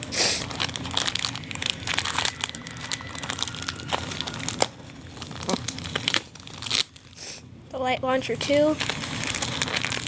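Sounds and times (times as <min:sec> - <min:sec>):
plastic packaging crinkling: 0:00.0 - 0:07.2, 0:08.3 - 0:10.0.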